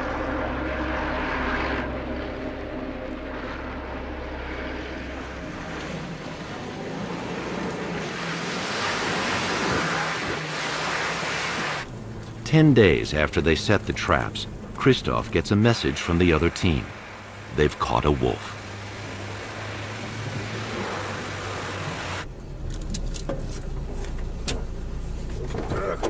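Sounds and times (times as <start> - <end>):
vehicle engine running: 0.0 - 26.0
tyres splashing through muddy water: 6.3 - 11.9, 13.7 - 22.2.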